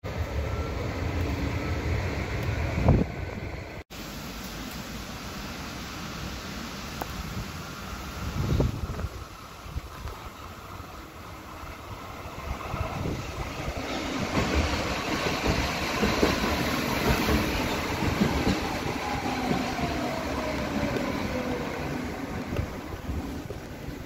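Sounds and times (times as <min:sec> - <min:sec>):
train wheels rumbling on rail: 0:06.9 - 0:24.0
rail clacks: 0:11.6 - 0:24.0.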